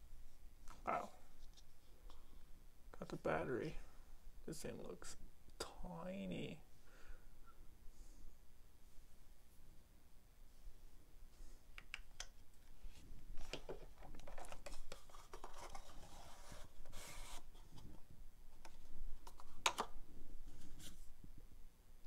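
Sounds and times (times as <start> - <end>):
paper rustling: 13.4 - 18.0
cardboard scraping and sliding: 15.4 - 17.9.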